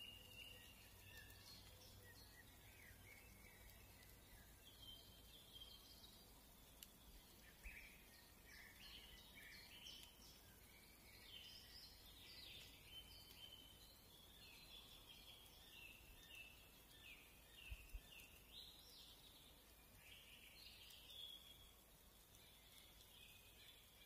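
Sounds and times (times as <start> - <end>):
birds chirping and whistling: 0.0 - 6.3
background hiss: 0.0 - 24.0.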